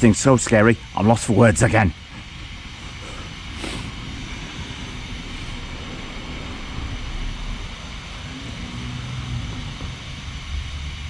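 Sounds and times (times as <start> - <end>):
electric rc car drivetrain and tyres: 2.3 - 11.0.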